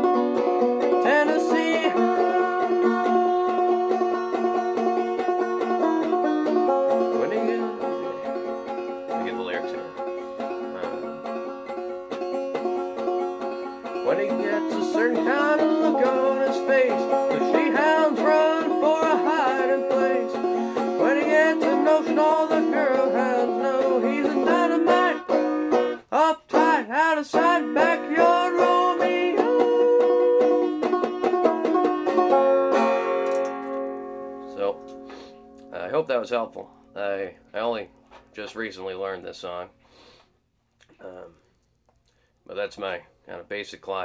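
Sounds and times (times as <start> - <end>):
banjo picking a melody: 0.0 - 39.6.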